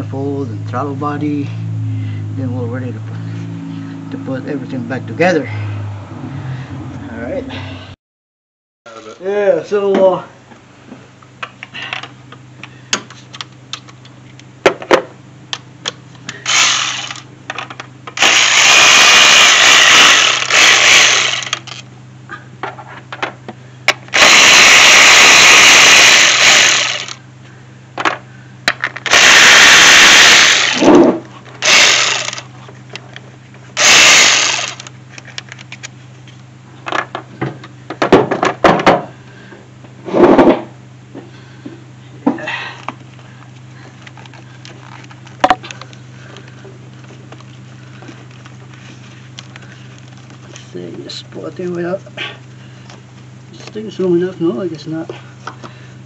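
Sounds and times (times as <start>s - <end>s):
cordless power driver spinning bolts: 16.4s - 21.9s, 23.9s - 27.2s, 29.0s - 31.0s, 31.6s - 32.5s, 33.8s - 35.9s.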